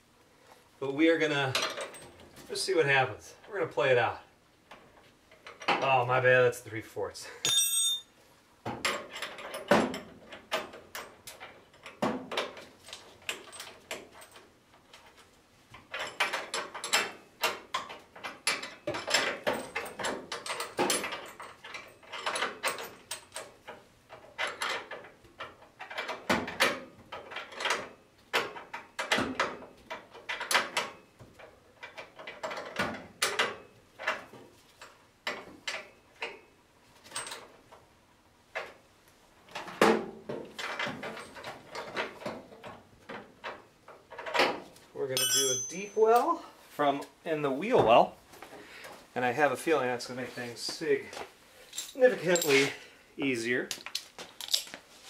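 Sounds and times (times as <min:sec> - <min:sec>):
wrench clinking on metal: 0:07.4 - 0:08.2, 0:45.1 - 0:46.4, 0:51.7 - 0:52.8.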